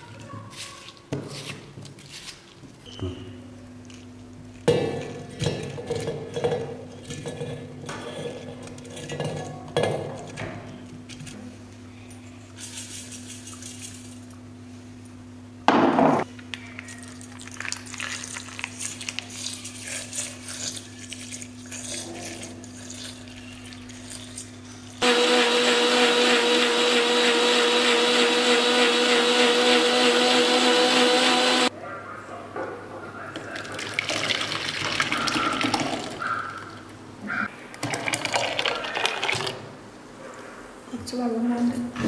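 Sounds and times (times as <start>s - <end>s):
mixer grinder motor whining: 25.0s - 31.7s.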